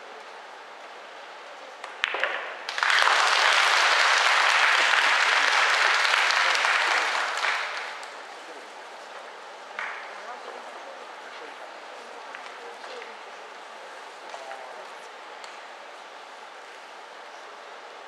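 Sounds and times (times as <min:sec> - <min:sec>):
pool balls clicking: 0:01.8 - 0:02.8
audience applause: 0:02.7 - 0:08.2.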